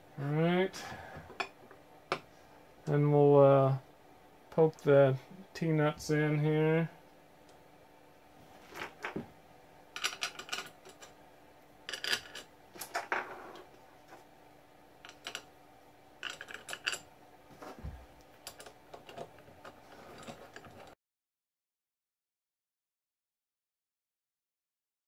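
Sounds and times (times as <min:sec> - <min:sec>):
metal nuts and bolts clinking: 0:10.0 - 0:11.1, 0:11.9 - 0:13.2, 0:15.0 - 0:15.5, 0:16.2 - 0:17.1, 0:18.4 - 0:20.9.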